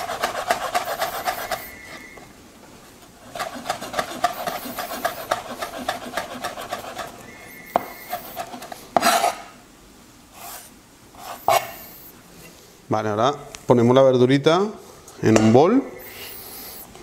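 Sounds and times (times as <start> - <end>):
knife chopping on plastic board: 3.3 - 7.1.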